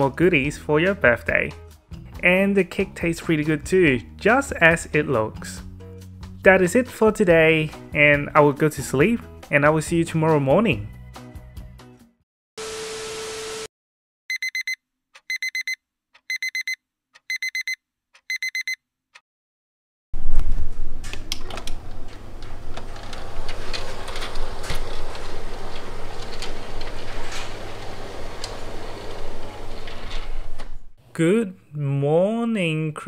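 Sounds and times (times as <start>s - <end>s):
alarm clock beeping: 14.3s - 18.8s
motorised curtain running: 21.4s - 30.7s.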